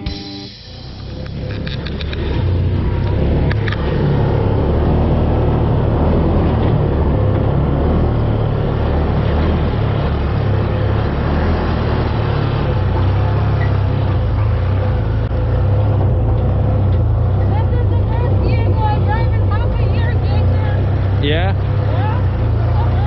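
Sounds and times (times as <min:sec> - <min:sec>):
off-road vehicle engine droning: 0:00.0 - 0:23.0
rush of open cab: 0:00.0 - 0:23.0.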